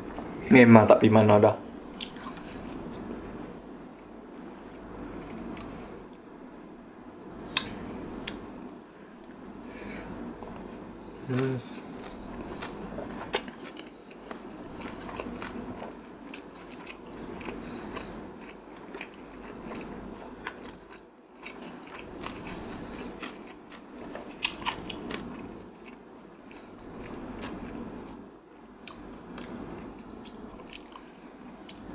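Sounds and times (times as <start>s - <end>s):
close chewing with wet crunches: 11.6s - 28.2s.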